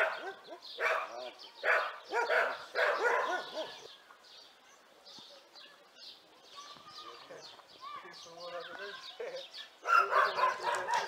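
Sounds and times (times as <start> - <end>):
dog barking: 0.0 - 3.9, 9.8 - 11.0.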